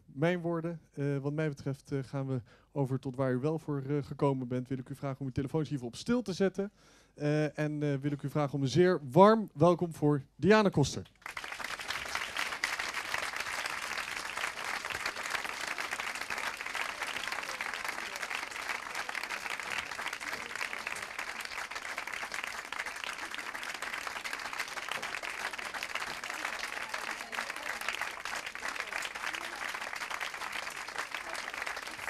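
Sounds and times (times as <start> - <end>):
audience applauding: 11.2 - 32.0.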